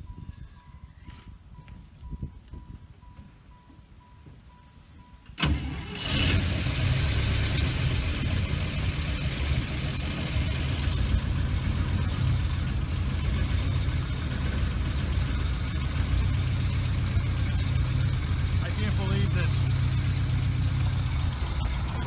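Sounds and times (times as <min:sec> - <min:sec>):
engine starting and running: 0:05.2 - 0:22.0.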